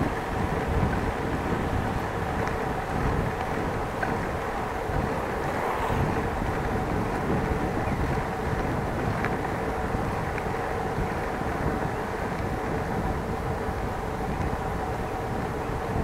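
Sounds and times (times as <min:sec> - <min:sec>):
bicycle rolling noise: 0:00.0 - 0:16.0
wind buffeting microphone: 0:00.0 - 0:16.0.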